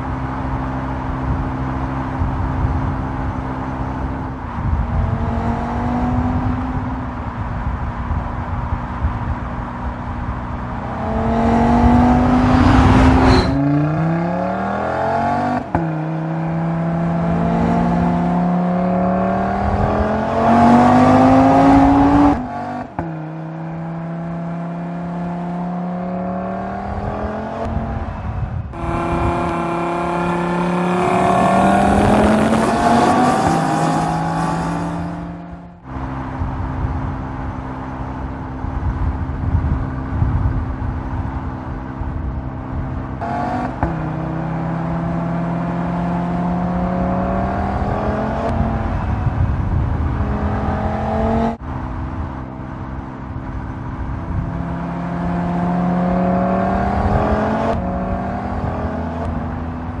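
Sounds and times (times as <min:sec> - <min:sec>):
car engine accelerating: 0:00.0 - 1:00.0.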